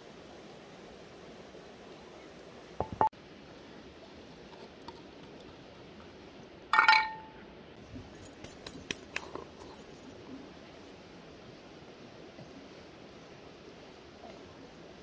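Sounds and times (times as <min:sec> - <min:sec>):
kitchen utensils clinking: 0:06.8 - 0:07.4.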